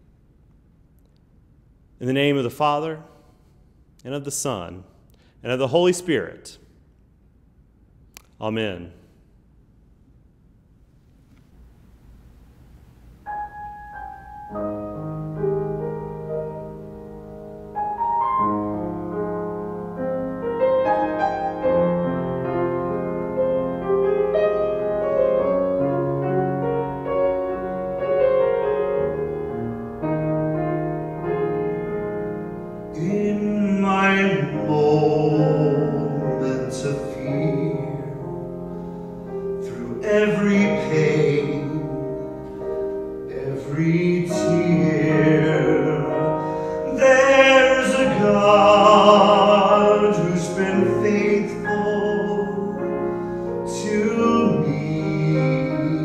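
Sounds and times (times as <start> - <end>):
grand piano playing: 13.2 - 56.0
man singing: 32.9 - 38.4, 39.6 - 42.4, 43.3 - 56.0.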